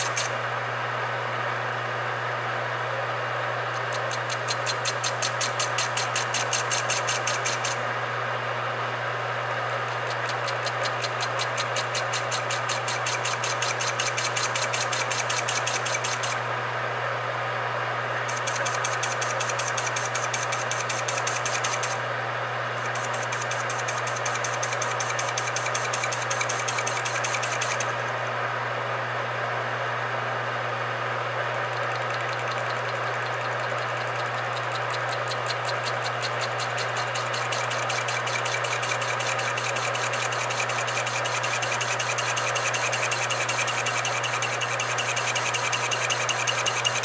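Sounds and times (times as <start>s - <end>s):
lathe motor hum: 0.0s - 17.0s, 17.9s - 28.4s, 30.8s - 47.0s.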